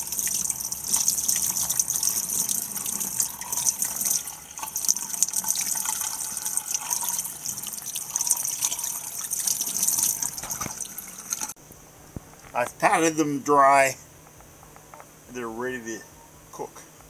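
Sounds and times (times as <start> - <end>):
tap water splashing in sink: 0.0 - 11.5.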